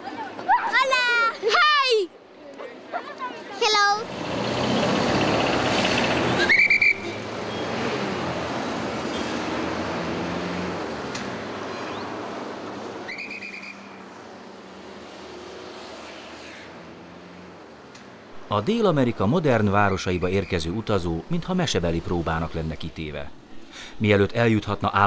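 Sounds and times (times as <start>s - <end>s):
city street traffic: 0.0s - 25.0s
shrill police whistle blasts: 6.4s - 7.2s, 13.0s - 14.0s.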